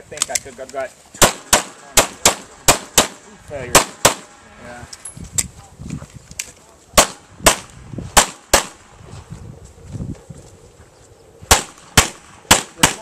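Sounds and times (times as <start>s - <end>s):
handgun shots: 1.2s - 4.3s, 7.0s - 8.8s, 11.5s - 13.0s.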